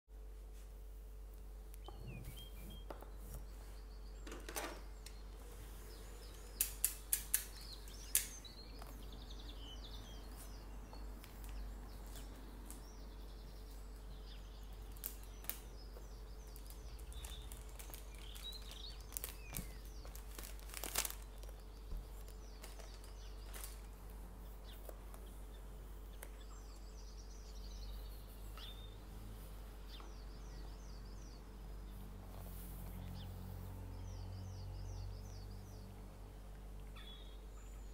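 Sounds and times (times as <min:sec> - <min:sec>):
birds chirping: 0:01.0 - 0:37.9
sharp clicks: 0:06.3 - 0:09.0
cellophane crinkling: 0:16.4 - 0:24.2.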